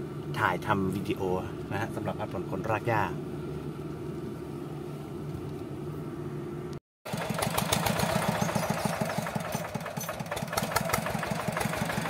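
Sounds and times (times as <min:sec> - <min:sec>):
single-cylinder diesel engine: 0:07.1 - 0:12.0.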